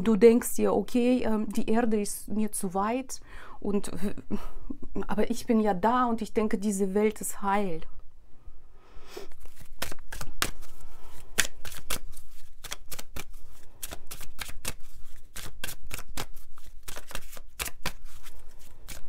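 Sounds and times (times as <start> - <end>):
cards being shuffled: 9.3 - 19.0.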